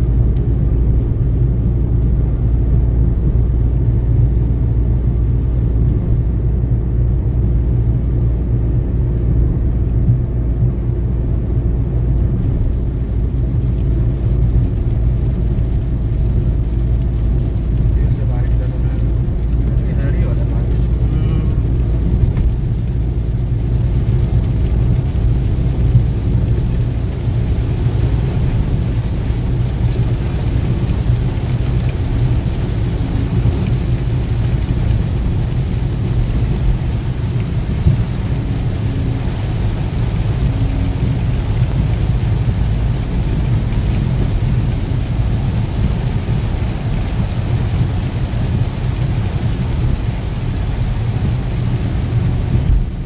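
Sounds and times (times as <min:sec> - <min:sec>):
car engine drone: 0:00.0 - 0:53.0
rain on a car: 0:00.0 - 0:53.0
tyres hissing on wet road: 0:12.0 - 0:53.0.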